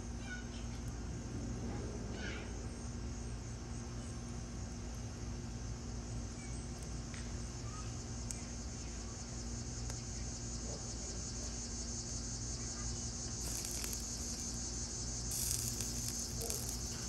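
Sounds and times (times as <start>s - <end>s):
insects chirring: 5.5s - 17.0s.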